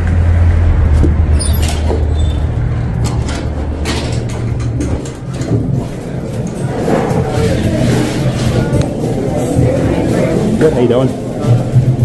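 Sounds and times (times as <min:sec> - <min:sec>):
steady low rumble: 0:00.0 - 0:10.1.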